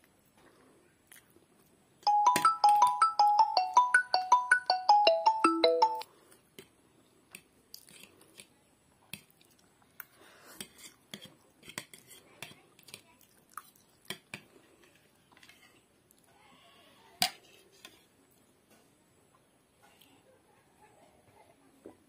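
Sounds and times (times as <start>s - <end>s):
bright marimba-like tune: 2.1s - 6.0s.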